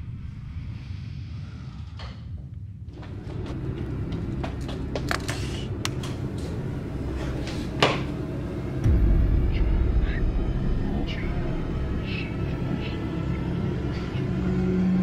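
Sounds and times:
steady low hum: 0.0s - 15.0s
deep low boom: 8.8s - 12.6s.

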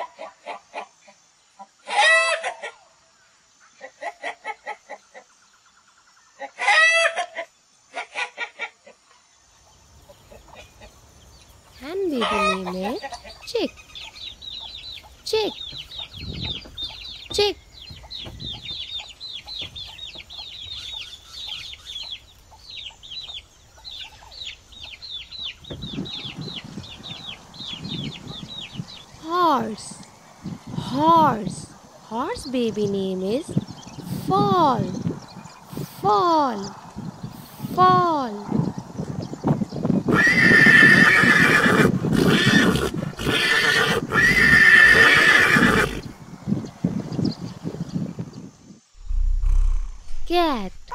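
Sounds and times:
chicks peeping: 12.0s - 29.1s
horse whinnying: 40.1s - 46.1s
lower rough sounds: 48.9s - 50.9s.

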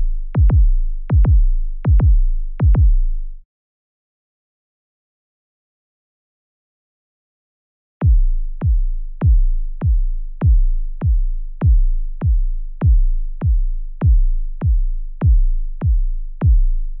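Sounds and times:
deep drum machine kick pulse: 0.0s - 3.3s, 8.0s - 17.0s.

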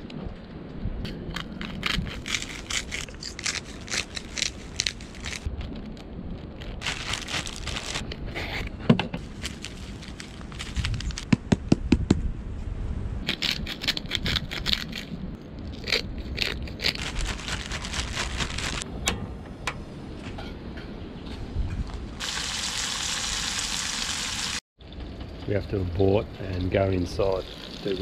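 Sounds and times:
wind rumble on microphone: 0.0s - 3.4s, 4.2s - 22.2s
plastic bag crinkling: 2.5s - 8.1s, 9.2s - 11.3s, 16.9s - 18.8s.

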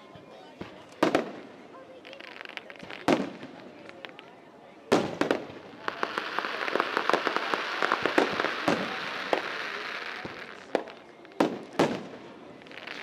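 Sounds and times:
fireworks sharp bangs: 0.6s - 1.5s, 4.9s - 13.0s
fireworks crackling pops: 0.6s - 4.3s, 4.9s - 13.0s.

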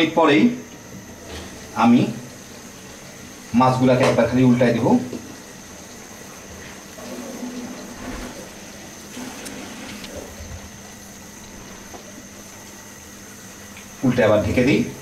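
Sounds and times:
spatula sloshing and scraping: 6.4s - 10.8s.

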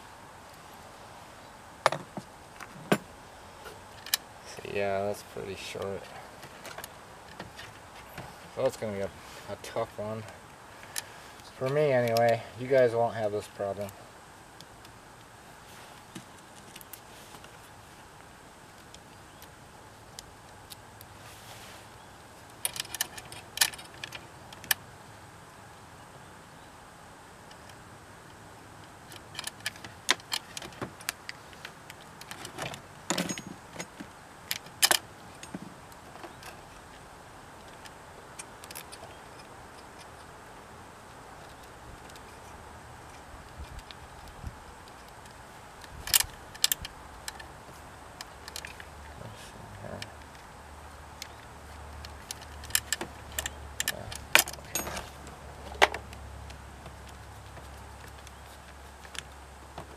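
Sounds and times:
light metallic rattles: 29.0s - 37.0s, 41.4s - 59.9s.

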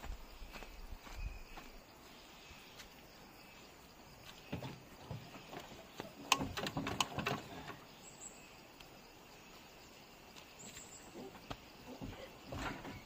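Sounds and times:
faint outdoor background: 0.0s - 13.0s
knocks and scrapes of vehicle: 4.4s - 7.8s, 11.9s - 13.0s.

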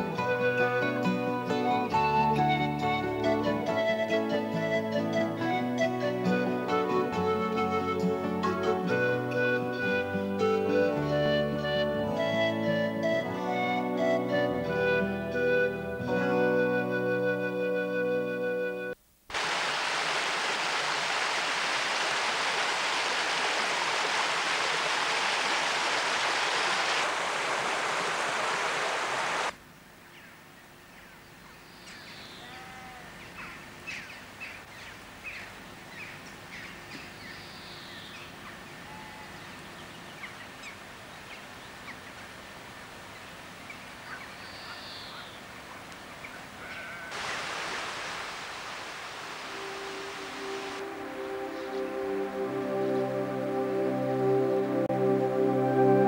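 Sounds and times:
stream water rushing: 19.3s - 29.6s, 46.4s - 54.2s
short bird calls: 44.1s - 47.4s.

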